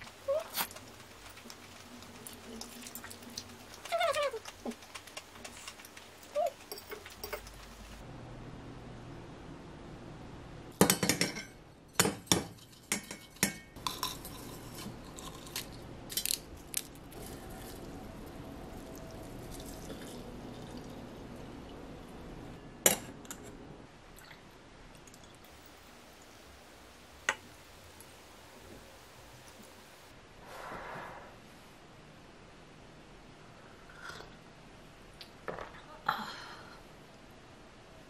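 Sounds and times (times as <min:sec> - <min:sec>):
water pouring into teapot: 0:17.2 - 0:21.8.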